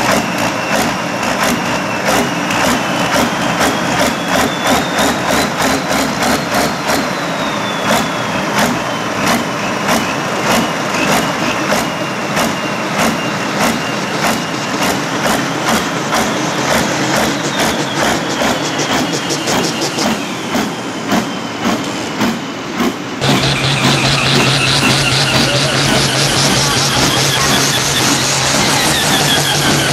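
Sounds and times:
tractor diesel engine running: 0.0s - 29.9s
faint high whine: 23.2s - 29.9s.

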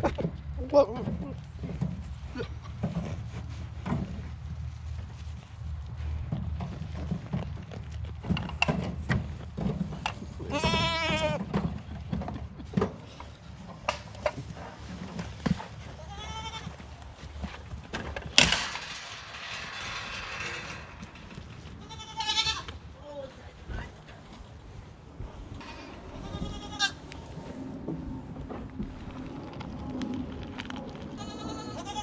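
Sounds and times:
goats crunching hay: 1.1s - 18.8s, 24.5s - 32.0s
rustling: 1.3s - 27.6s
goats bleating: 10.4s - 11.4s, 16.0s - 16.9s, 21.8s - 22.7s, 26.1s - 27.0s, 31.2s - 32.0s.

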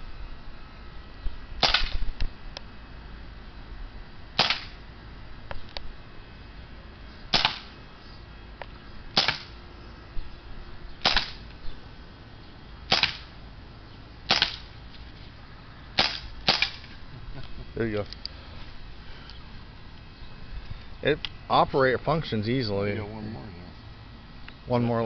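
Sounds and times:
air pistol shots: 1.6s - 2.1s, 4.4s - 4.8s, 7.3s - 7.7s, 9.1s - 9.6s, 11.0s - 11.4s, 12.9s - 13.3s, 14.3s - 14.7s, 16.0s - 16.9s.

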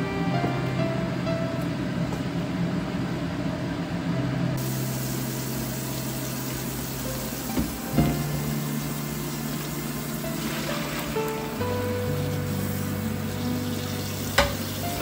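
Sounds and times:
tap water running into sink: 4.6s - 15.0s.

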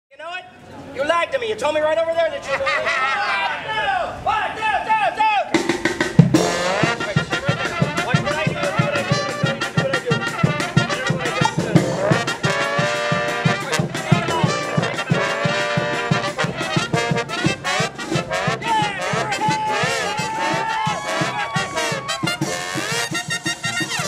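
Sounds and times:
marching brass band playing: 5.5s - 24.0s
steady drum beat: 5.5s - 24.0s.

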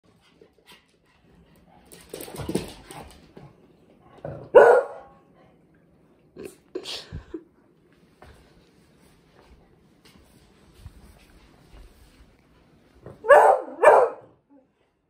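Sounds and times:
dogs barking: 4.5s - 5.1s, 13.2s - 14.3s
rustling of movement: 7.8s - 13.1s.

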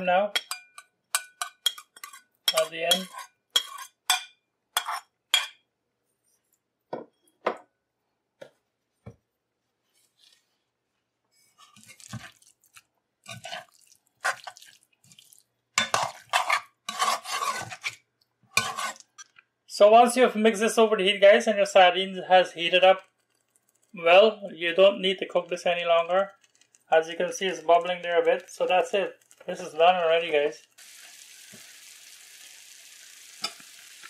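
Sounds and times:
spoon scraping a metal pot: 0.4s - 5.6s, 13.3s - 14.6s, 15.8s - 19.4s, 33.4s - 33.6s.

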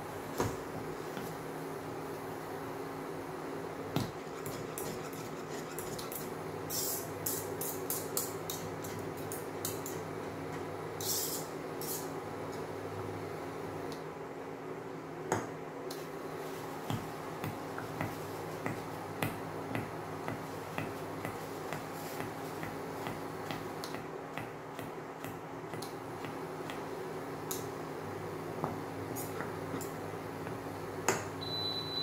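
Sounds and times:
whisk scraping steel saucepan: 4.2s - 6.3s.

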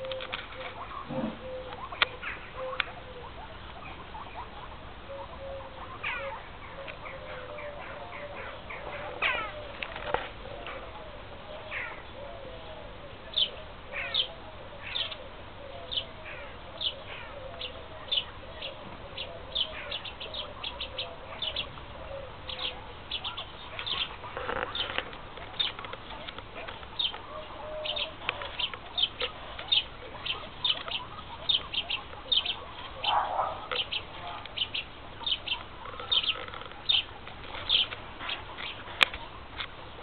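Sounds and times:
guinea pig wavering calls: 0.0s - 11.0s, 13.4s - 38.8s
guinea pigs squeaking: 0.0s - 11.0s, 16.0s - 39.7s.

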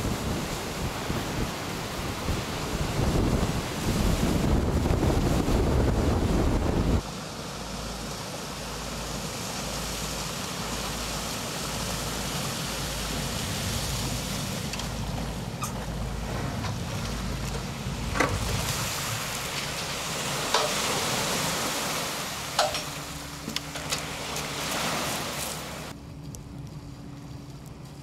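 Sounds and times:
wind buffeting microphone: 0.0s - 7.0s, 13.1s - 23.7s
rushing water spray: 0.0s - 26.0s
low boat engine rumble: 0.0s - 28.0s.

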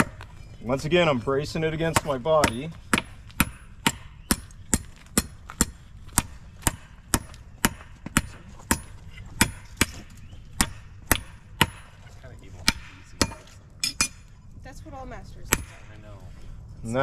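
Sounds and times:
hammer striking metal on anvil: 1.9s - 12.0s, 12.6s - 14.3s.

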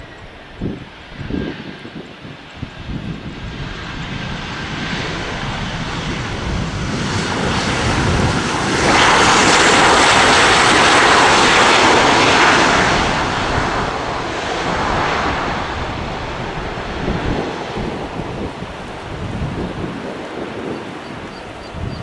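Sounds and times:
jet engine roar: 0.0s - 22.0s.

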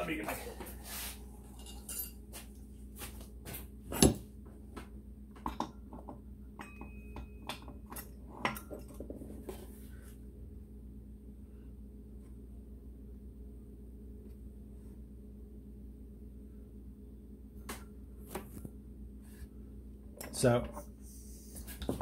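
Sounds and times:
metal tools clinking: 1.5s - 2.2s
short metallic ring: 6.6s - 7.6s.

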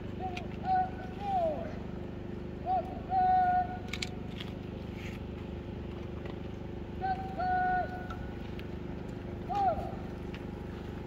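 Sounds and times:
distant people shouting: 0.0s - 4.0s, 6.8s - 10.4s.

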